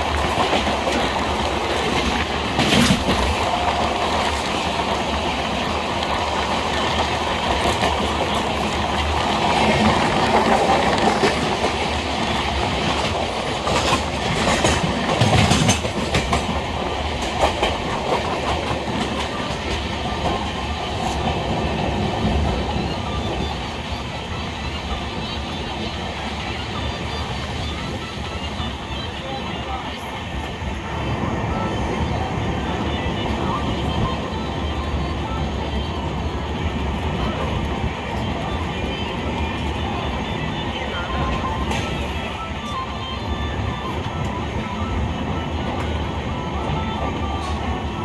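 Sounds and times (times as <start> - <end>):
wheels clacking over rail joints: 0.0 - 25.8
train wheels rumbling: 0.0 - 48.0.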